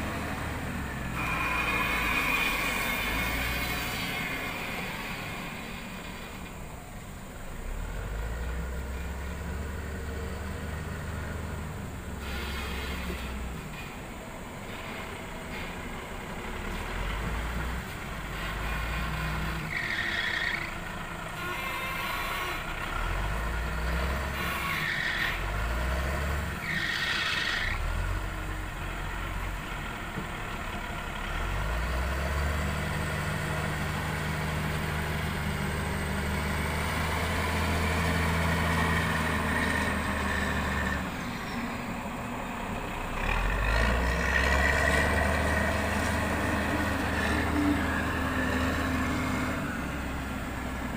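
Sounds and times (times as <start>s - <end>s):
diesel loader engine revving: 0.0s - 50.9s
short high squeals: 0.9s - 6.3s, 12.2s - 15.8s, 18.2s - 20.8s, 21.4s - 22.9s, 24.2s - 25.9s, 26.6s - 27.9s, 39.5s - 42.0s.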